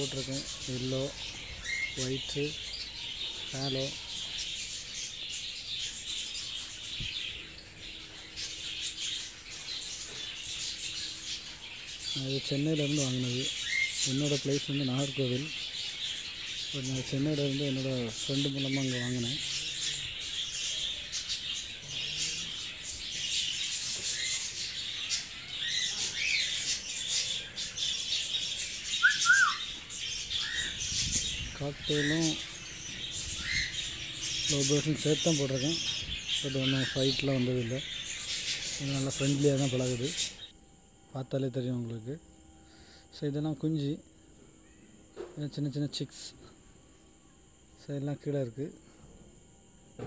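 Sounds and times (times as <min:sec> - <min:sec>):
budgerigars chattering: 0:00.0 - 0:40.5
birds shrill twittering: 0:00.0 - 0:50.0
rising and falling whistled notes: 0:29.0 - 0:29.8.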